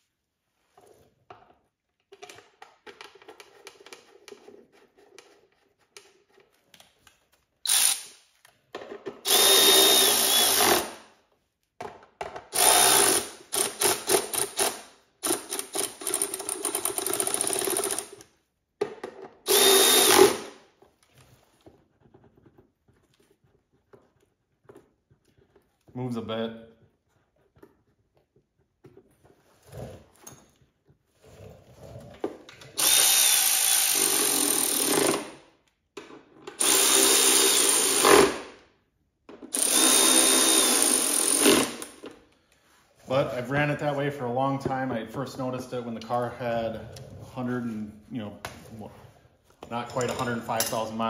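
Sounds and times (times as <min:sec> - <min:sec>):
electric wrench spinning bolts: 0:07.7 - 0:08.2, 0:09.2 - 0:11.0, 0:12.5 - 0:18.2, 0:19.5 - 0:20.6, 0:32.8 - 0:35.4, 0:36.5 - 0:38.4, 0:39.5 - 0:42.0.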